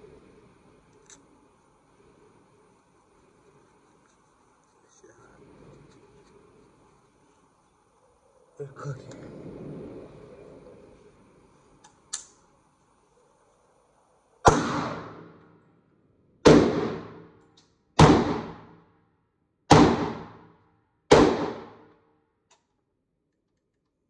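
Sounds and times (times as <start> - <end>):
gunshots with echo: 14.4 - 15.4, 16.4 - 17.4, 18.0 - 18.8, 19.7 - 20.5, 21.1 - 21.9.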